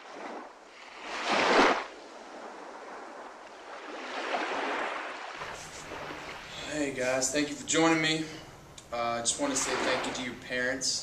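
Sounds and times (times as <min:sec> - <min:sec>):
waves washing on beach: 0:00.0 - 0:06.7, 0:09.4 - 0:10.3.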